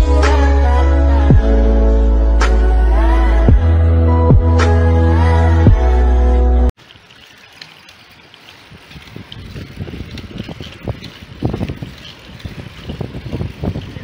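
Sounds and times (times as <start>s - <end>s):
wind buffeting microphone: 8.6s - 14.0s.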